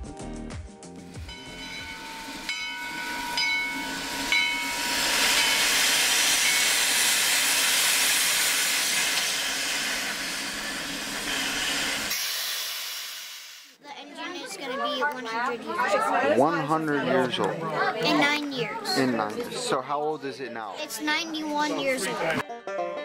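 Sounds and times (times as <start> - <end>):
steam venting hiss: 1.1 - 13.8
faint held tone: 1.2 - 5.8.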